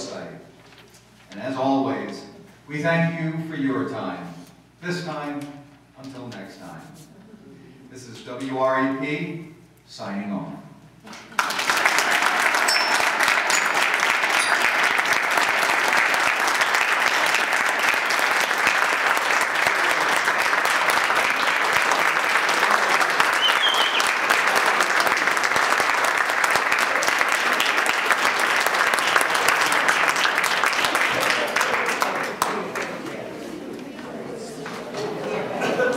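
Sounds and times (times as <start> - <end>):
audience applauding: 11.1 - 33.2.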